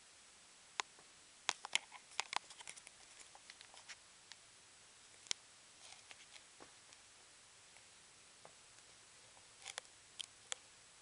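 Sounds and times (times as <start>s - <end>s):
sharp clicks and light taps: 0.8s - 4.4s.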